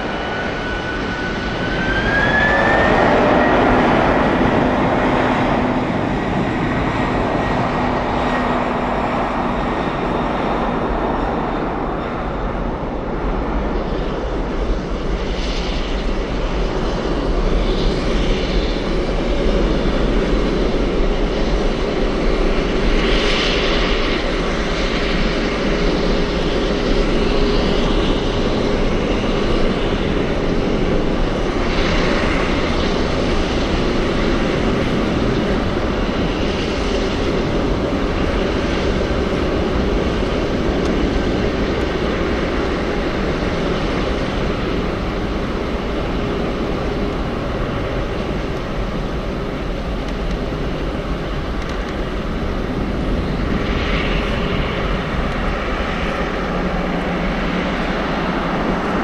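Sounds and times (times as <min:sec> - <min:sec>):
engine whine rising: 0:00.0 - 0:10.5
jet engines roaring: 0:00.0 - 0:59.0.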